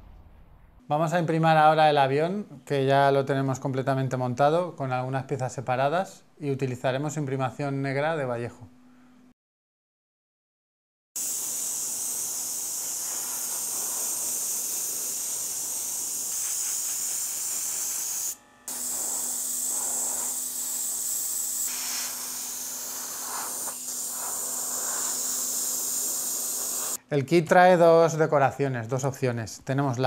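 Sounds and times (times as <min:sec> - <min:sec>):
airbrush spraying hiss: 0:11.2 - 0:27.0.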